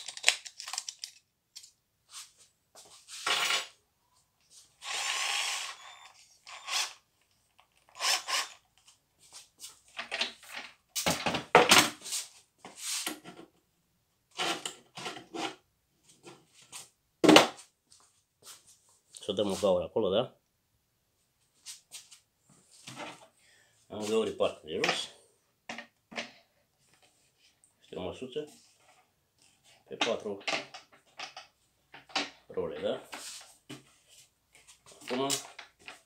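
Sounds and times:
cordless drill running: 4.8s - 7.0s, 7.9s - 8.6s.

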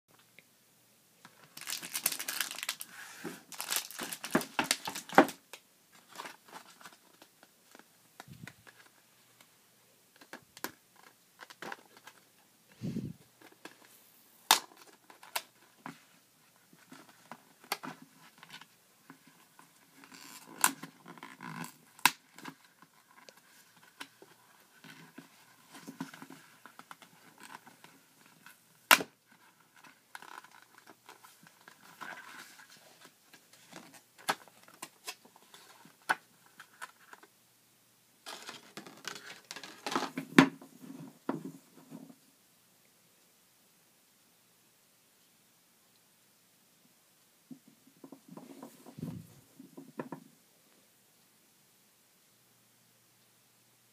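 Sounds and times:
plastic packaging crinkling: 1.3s - 7.8s
sharp clicks of packs: 1.5s - 5.6s.

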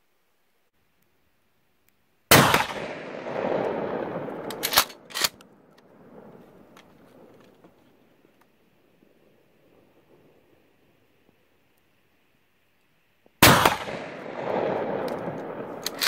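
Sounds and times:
shotgun blast with echo: 2.3s - 4.4s, 13.4s - 15.8s.

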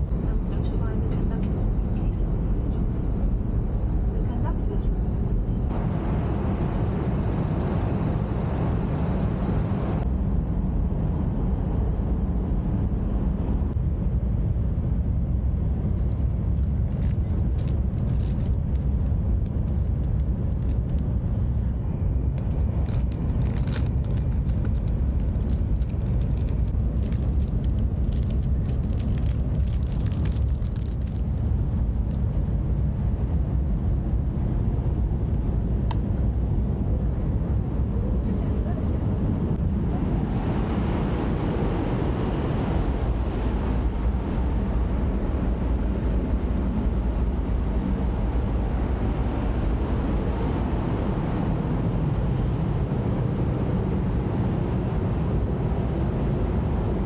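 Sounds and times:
train running noise inside car: 0.0s - 6.0s, 15.8s - 40.2s
plastic wrapper crinkling: 16.6s - 19.0s, 22.8s - 32.2s.

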